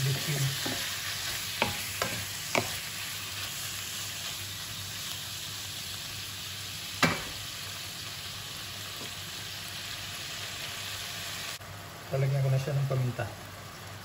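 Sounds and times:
food sizzling in a wok: 0.0 - 14.0.

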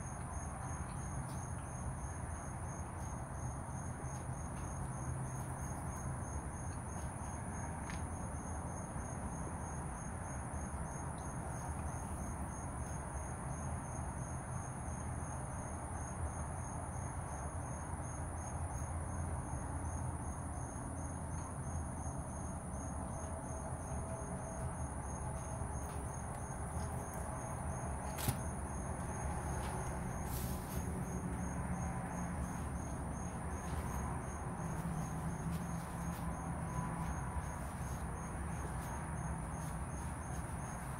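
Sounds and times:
insects trilling: 21.7 - 40.9
low outdoor rumble: 22.9 - 40.9.

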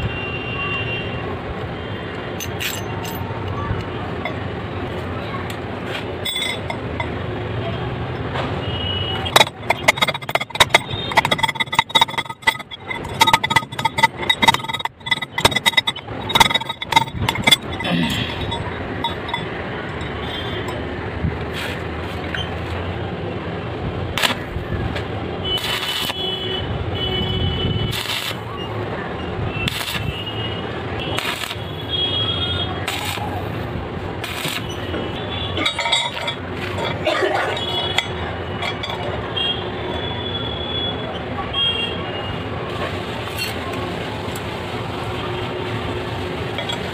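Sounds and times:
metallic clinks on steel plate: 2.4 - 3.3, 6.2 - 7.2, 9.3 - 20.9, 35.6 - 39.2
welding arc crackling: 24.2 - 26.3, 27.9 - 28.5, 29.6 - 32.0, 32.8 - 35.1
steady electrical buzz: 27.8 - 28.5.

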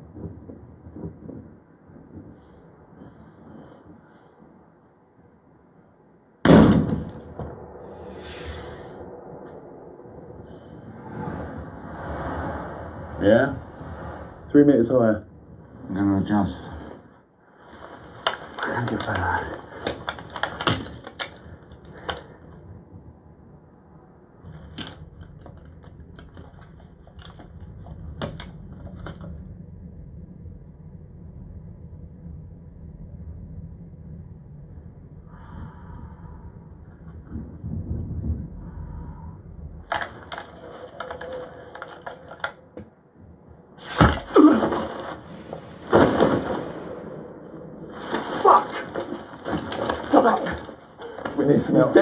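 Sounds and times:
low steady rumble: 0.0 - 43.9, 44.6 - 52.0
sharp gunshot crack: 6.4 - 8.5
sniper rifle gunshots with echo: 6.5 - 8.1
crackling: 15.7 - 22.7, 39.8 - 42.8, 43.8 - 52.0.

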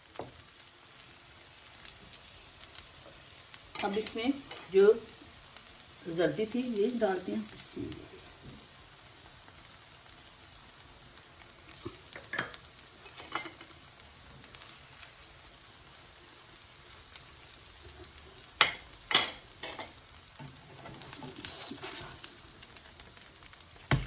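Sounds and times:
fritters sizzling in frying pan: 0.0 - 24.0
utensils tapping and scraping pan: 3.0 - 4.7, 11.8 - 13.8, 17.9 - 22.2.

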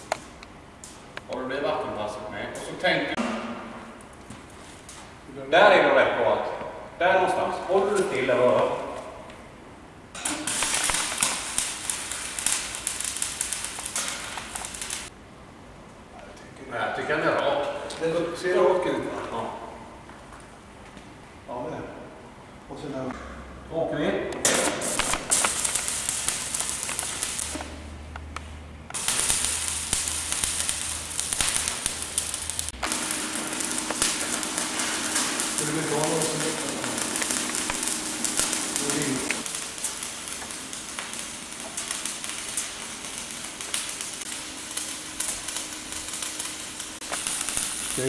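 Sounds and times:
arc welding crackling hiss: 0.0 - 5.2, 7.3 - 9.3, 10.1 - 15.2, 24.4 - 48.0
low hum: 27.8 - 47.9.

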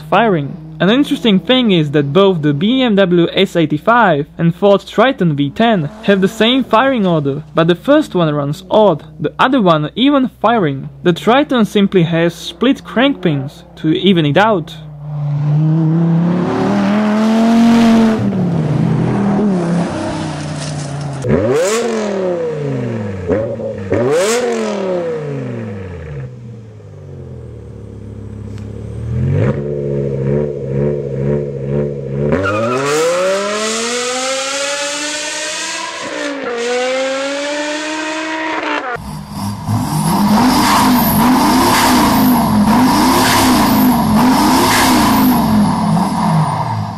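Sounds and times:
car engine revving: 0.0 - 46.9
diesel engine blipped: 0.0 - 46.9
car engine accelerating past: 14.8 - 46.9.

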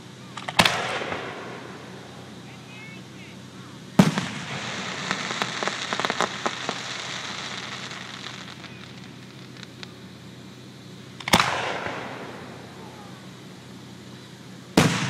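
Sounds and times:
fireworks crackling and popping: 0.0 - 15.0
firework shell bang: 14.8 - 15.0.

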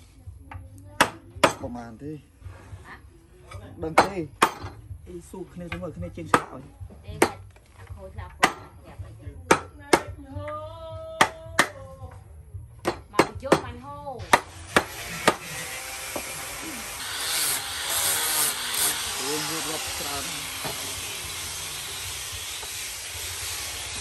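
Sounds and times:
blade chopping on wooden board: 8.4 - 8.8, 12.8 - 15.5
angle grinder sanding: 14.4 - 24.0.

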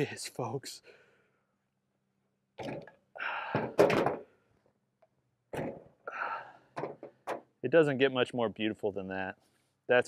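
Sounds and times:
metallic knocks and clanks: 3.6 - 4.3, 6.8 - 7.5.

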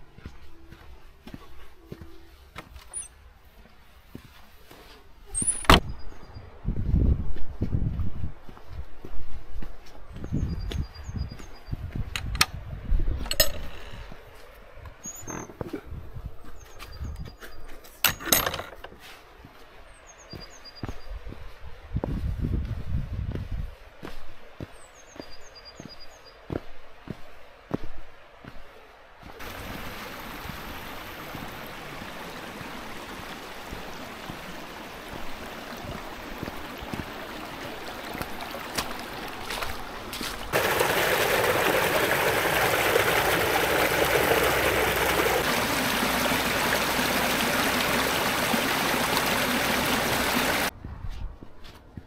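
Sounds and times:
stream trickling: 2.6 - 4.4, 29.4 - 50.7.

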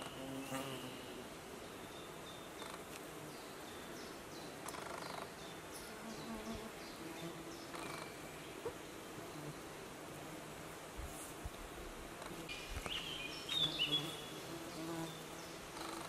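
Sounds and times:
flying insect buzzing: 0.0 - 1.0, 9.2 - 16.0.

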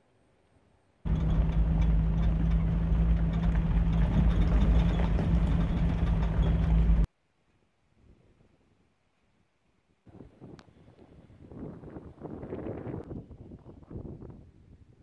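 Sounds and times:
car engine driving: 1.1 - 7.1.

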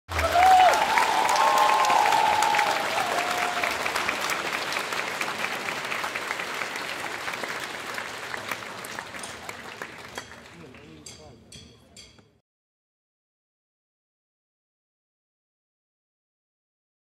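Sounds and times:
crowd cheering: 0.1 - 11.2
large crowd applauding: 0.1 - 11.2.

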